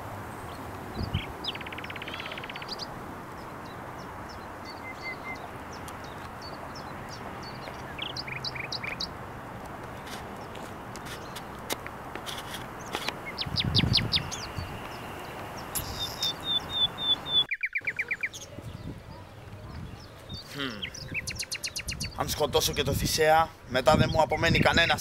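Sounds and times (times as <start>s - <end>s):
small birds chirping: 0.3s - 25.0s
buzzy bird trill: 1.0s - 2.9s, 12.8s - 18.8s, 20.0s - 22.2s.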